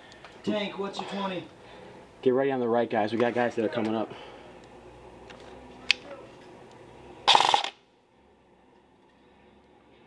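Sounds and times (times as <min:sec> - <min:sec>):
airsoft rifle burst: 0:07.3 - 0:07.8.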